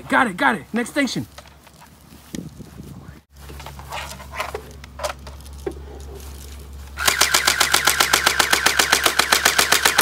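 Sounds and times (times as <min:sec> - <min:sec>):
airsoft rifle automatic burst: 0:07.0 - 0:10.0.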